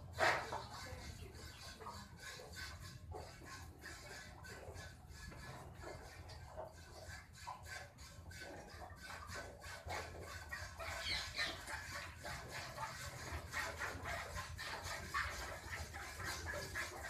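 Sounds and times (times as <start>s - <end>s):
milk squirting into metal pails: 0.0s - 17.0s.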